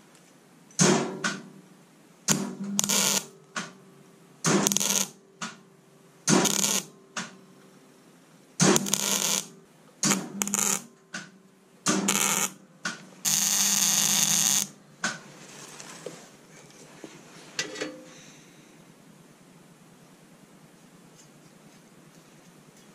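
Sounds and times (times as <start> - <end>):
welder arc crackling: 2.3 - 3.7, 4.4 - 5.6, 6.3 - 7.3, 8.6 - 11.3, 11.9 - 15.2.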